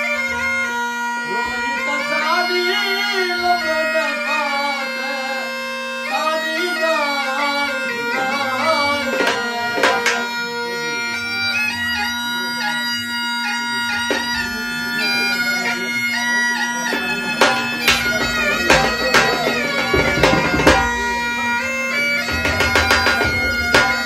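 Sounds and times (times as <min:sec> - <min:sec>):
bagpipe melody over drone: 0:00.0 - 0:24.0
dhol drum strokes: 0:07.9 - 0:24.0.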